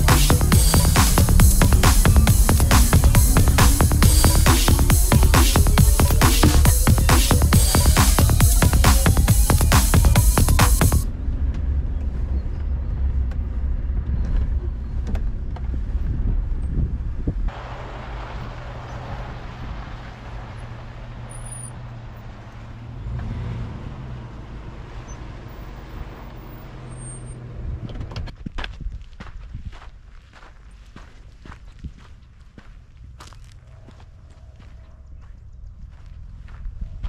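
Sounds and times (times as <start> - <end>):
vehicle rumbling from inside cab: 0.0 - 28.5, 31.1 - 37.0
outdoor hiss: 17.5 - 21.6
footsteps on dirt: 28.2 - 37.0.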